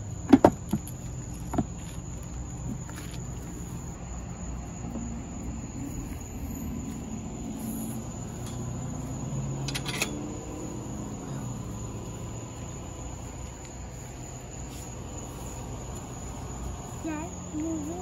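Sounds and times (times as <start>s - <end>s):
steady low hum: 0.0s - 18.0s
chain-link gate clanking open: 9.6s - 10.3s.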